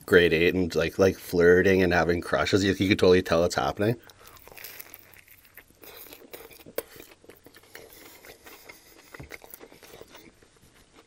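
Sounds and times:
close chewing mouth clicks: 4.0s - 11.0s.

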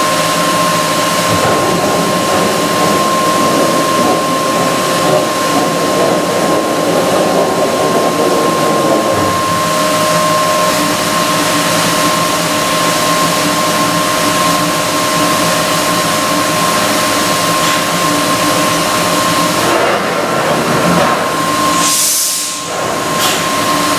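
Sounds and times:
high-pitched spindle whine: 0.0s - 16.9s
coolant water spray hissing: 21.8s - 23.5s.

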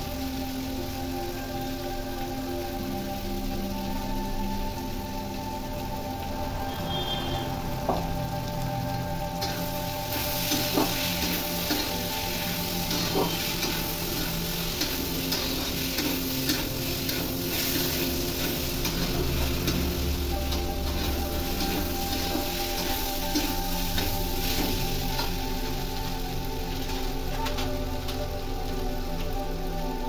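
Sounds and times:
food sizzling in oil: 0.0s - 30.0s.

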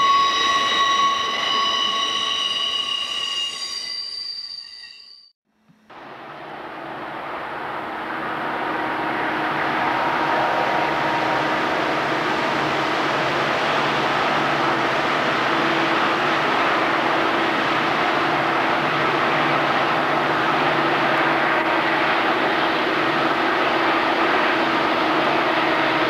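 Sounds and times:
diesel locomotive engines droning: 5.9s - 26.0s.

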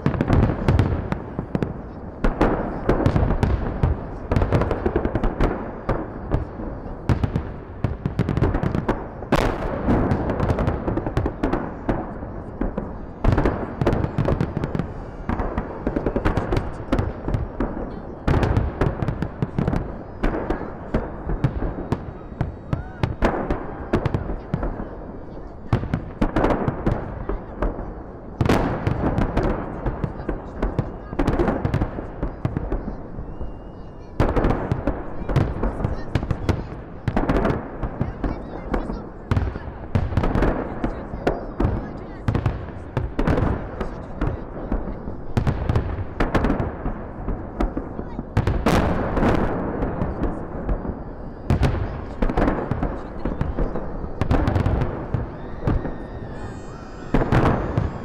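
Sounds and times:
fireworks echoing bangs: 0.0s - 58.0s.

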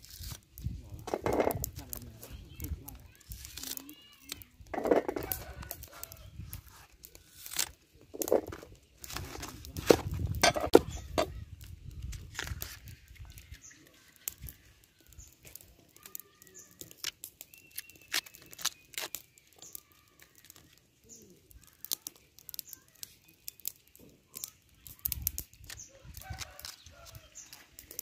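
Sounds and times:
plant bracts snapping and tearing: 0.0s - 28.0s.

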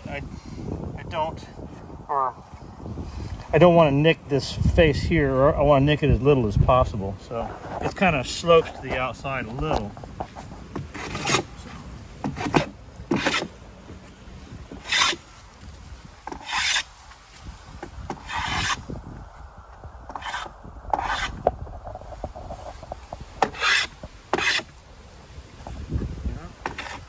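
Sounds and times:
hand plane shaving wood: 11.0s - 11.5s, 14.8s - 15.2s, 16.3s - 16.8s, 18.2s - 18.8s, 23.5s - 24.6s.

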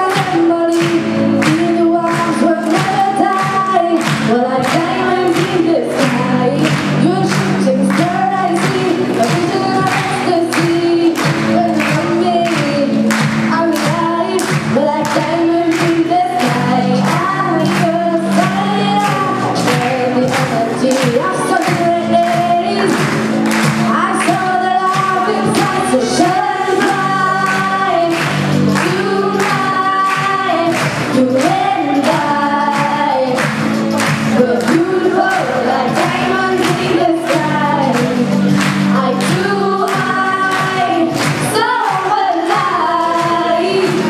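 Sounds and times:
women singing song with beat: 0.0s - 44.0s.

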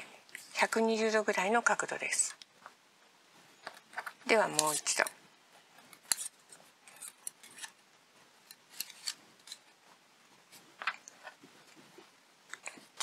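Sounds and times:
hands handling plastic petals: 3.6s - 7.8s, 8.4s - 13.0s.

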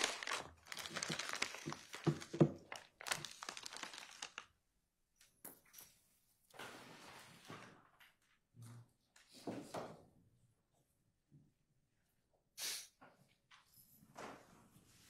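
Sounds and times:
paper or plastic rustling: 0.0s - 4.5s.

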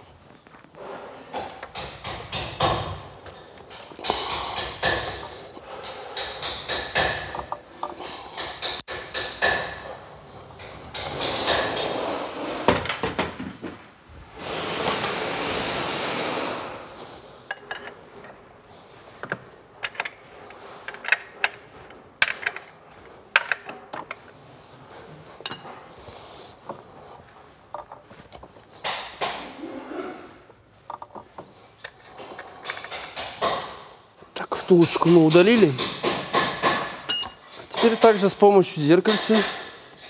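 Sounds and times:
metal hand tools clinking: 17.5s - 18.0s, 25.4s - 25.8s, 37.1s - 38.2s.

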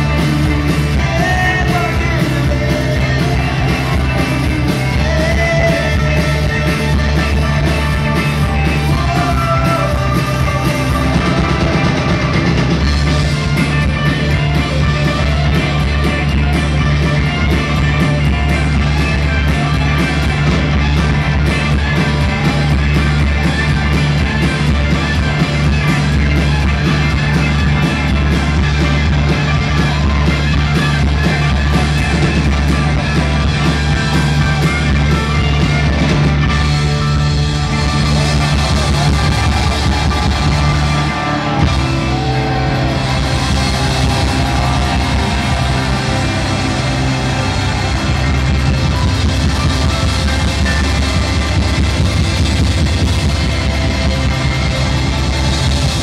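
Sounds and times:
live rock band playing: 0.0s - 56.0s.

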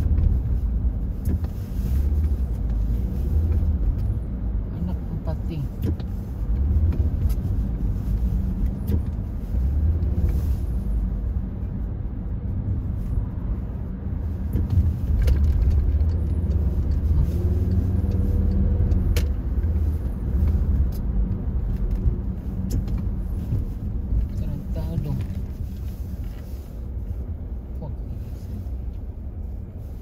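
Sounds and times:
car road and engine rumble: 0.0s - 30.0s.

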